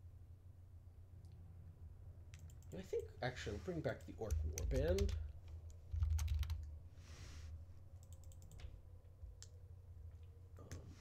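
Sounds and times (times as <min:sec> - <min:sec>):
computer keyboard typing: 0:04.2 - 0:05.3, 0:05.9 - 0:06.7, 0:08.0 - 0:08.7.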